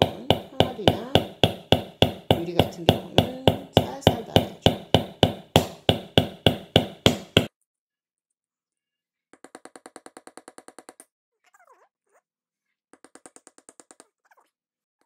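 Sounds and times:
hammer knocking on nail: 0.0 - 7.5.

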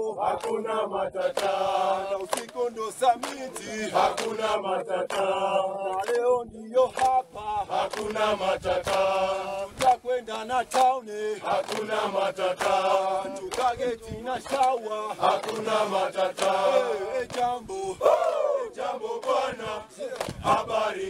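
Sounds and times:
men singing in unison: 0.0 - 21.0
hand claps: 0.4 - 0.6, 1.3 - 6.3, 6.9 - 7.2, 7.8 - 10.0, 10.6 - 16.6, 17.2 - 17.6, 20.1 - 20.6.

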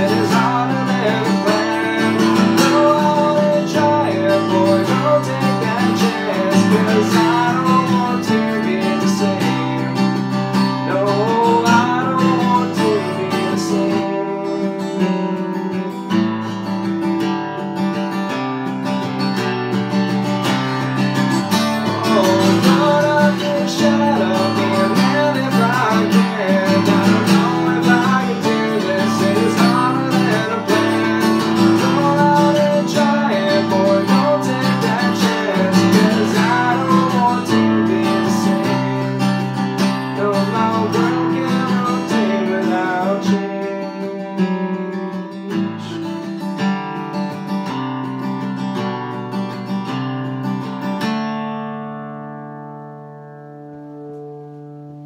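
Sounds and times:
man singing: 0.0 - 16.7, 20.2 - 46.7
strummed acoustic guitar: 0.0 - 55.0.

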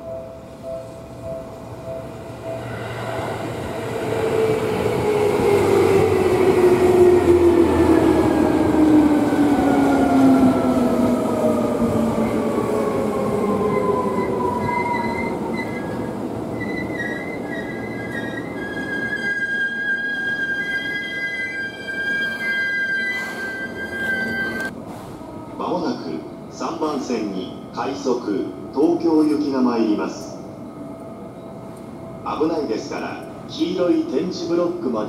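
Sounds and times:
train whining tones: 0.0 - 28.0
electric train rumbling past: 0.0 - 35.0.

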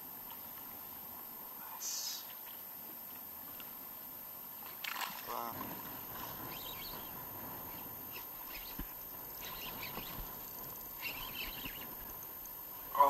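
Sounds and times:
faint bird chirps: 1.6 - 2.7, 6.1 - 12.1.

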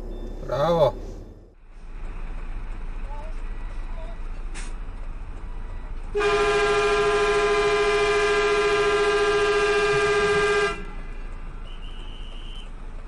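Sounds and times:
vehicle horn blast: 6.2 - 11.0.

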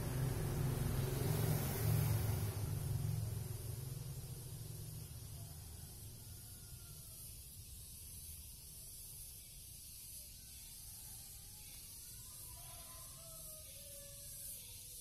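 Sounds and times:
steady hiss: 0.0 - 15.0
faint thin whistling tones: 5.4 - 15.0.

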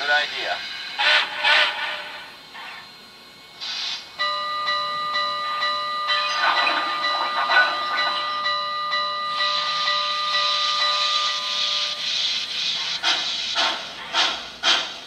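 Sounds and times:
soft locomotive chuffing: 0.0 - 15.0
hissing steam: 3.6 - 4.1, 9.4 - 15.0
chime steam whistle: 4.2 - 12.3.

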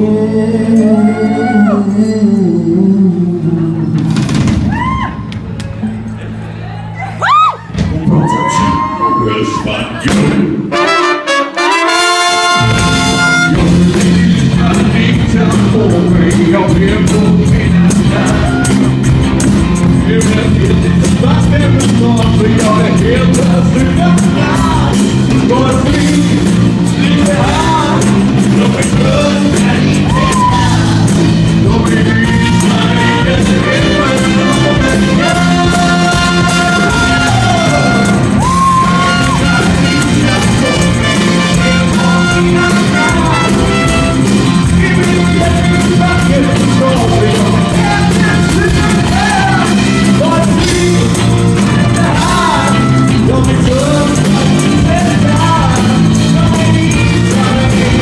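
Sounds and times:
man singing: 0.0 - 4.2, 8.1 - 58.0
bass guitar: 0.0 - 10.9, 11.6 - 58.0
drums: 0.0 - 58.0
horn section with trumpet: 10.7 - 14.0, 32.2 - 47.0.

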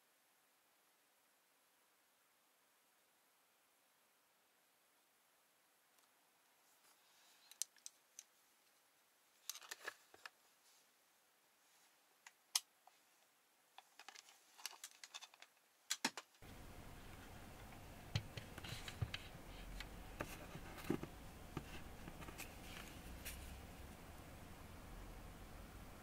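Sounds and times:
faint low hum: 0.0 - 26.0
steady hiss: 0.0 - 26.0.

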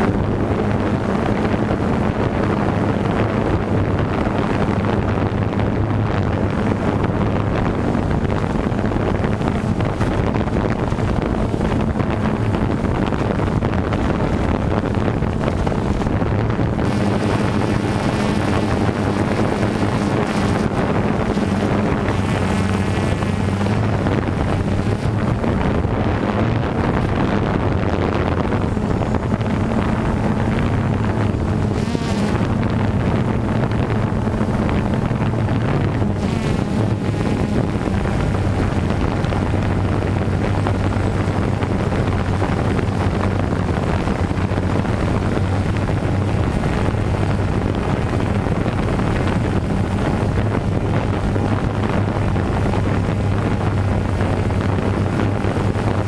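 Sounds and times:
drone propellers buzzing: 0.0 - 56.0
wind rushing over microphone: 0.0 - 56.0.

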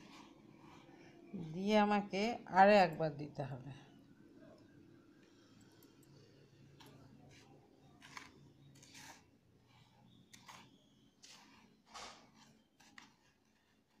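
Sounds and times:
breadcrumbs rustling: 7.0 - 14.0.

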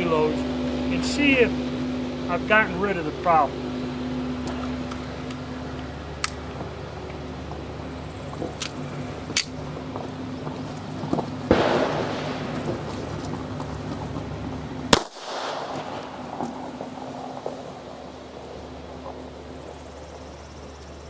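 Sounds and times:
pistol shots: 11.5 - 12.9, 14.9 - 16.4.

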